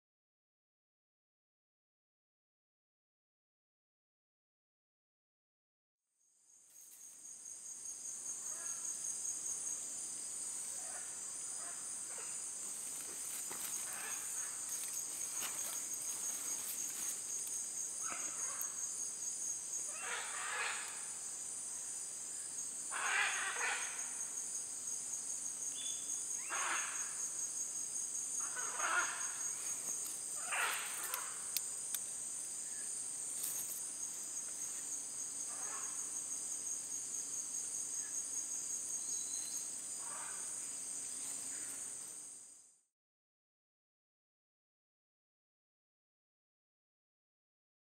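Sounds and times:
forest insects chorus: 6.4 - 42.8.

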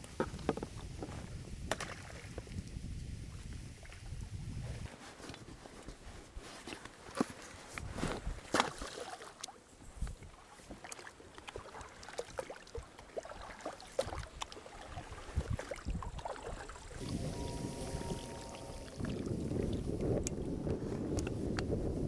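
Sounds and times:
water splashes and knocks: 0.1 - 4.2, 6.7 - 21.6
oar dipping in water: 6.6 - 21.3.

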